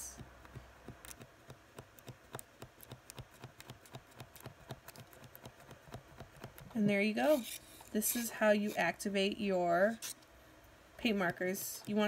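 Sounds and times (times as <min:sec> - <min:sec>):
paint marker nib clicking: 0:00.2 - 0:06.8.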